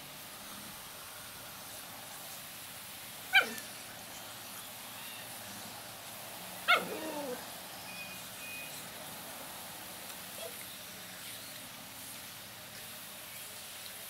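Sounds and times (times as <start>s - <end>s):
puppy barking: 3.3s - 3.6s, 6.6s - 7.4s.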